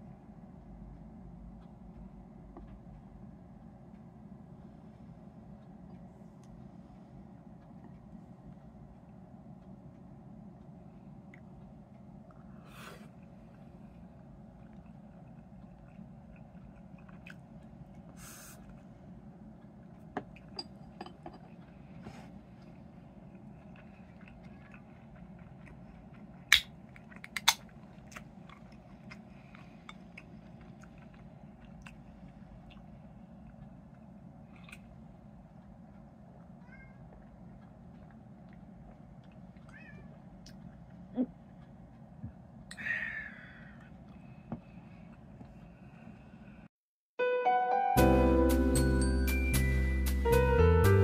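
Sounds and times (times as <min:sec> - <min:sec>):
low hum: 0:00.0 - 0:46.7
cat meowing: 0:36.6 - 0:37.1, 0:39.6 - 0:40.2.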